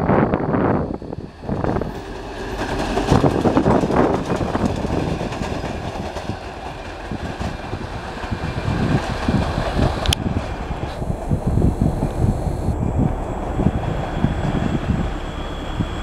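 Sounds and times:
diesel locomotive engines running: 0.0s - 16.0s
train wheels clattering over rail joints: 1.9s - 10.6s.

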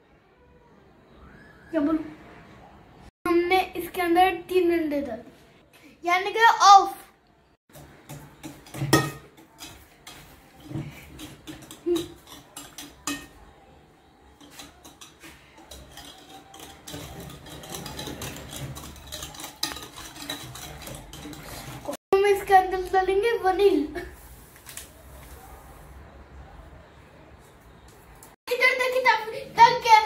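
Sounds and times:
whisk clinking against glass bowl: 8.1s - 13.4s, 14.3s - 22.0s.

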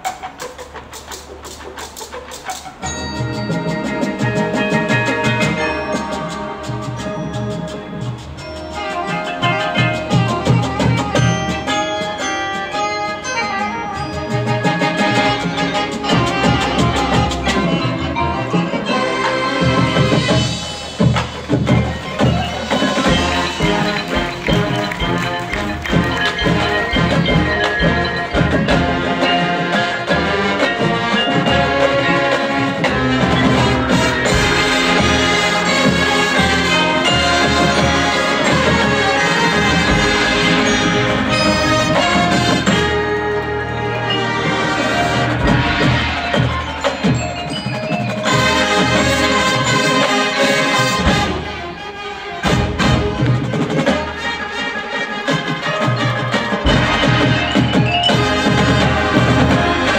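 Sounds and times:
mallet percussion: 0.0s - 59.9s
marching band playing: 0.0s - 59.9s
wind instruments holding chords: 0.0s - 59.9s
marimba and bells notes: 2.0s - 59.9s
drums striking: 14.0s - 43.4s, 44.2s - 51.7s, 52.4s - 54.4s, 55.3s - 59.9s.

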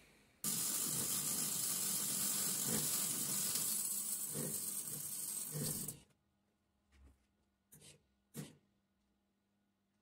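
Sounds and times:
arc welder crackling sizzle: 0.4s - 6.0s.

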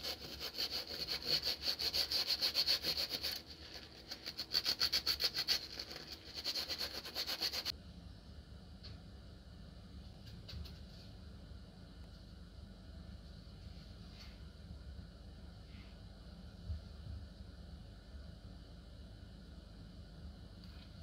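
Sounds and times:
sponge scrubbing: 0.0s - 7.7s.

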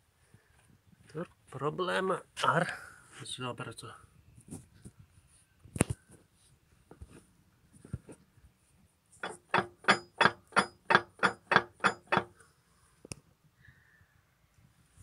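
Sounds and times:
metal tool tapping gearbox: 9.2s - 12.3s.

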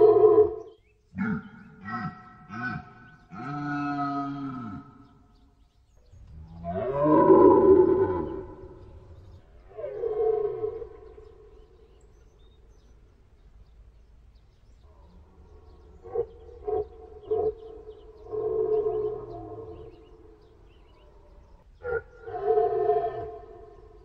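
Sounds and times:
deer stag roaring: 1.2s - 5.0s, 6.3s - 11.5s.

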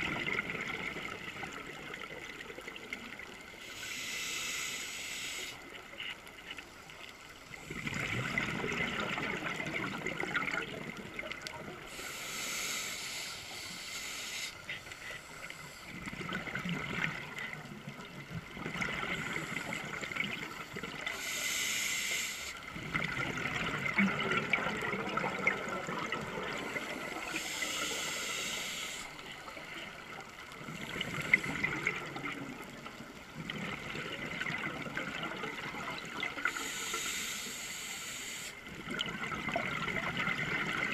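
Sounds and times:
hissing regulator inhale: 3.6s - 5.8s, 11.9s - 16.2s, 19.1s - 22.7s, 26.6s - 29.9s, 36.4s - 38.7s.

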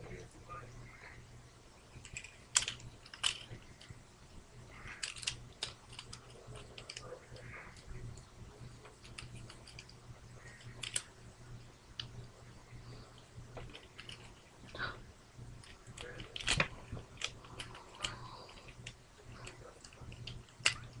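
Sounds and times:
low electrical hum: 0.0s - 21.0s
plastic toy parts clicking: 2.0s - 3.7s, 4.9s - 7.1s, 9.0s - 9.9s, 10.5s - 11.1s, 15.6s - 20.9s.

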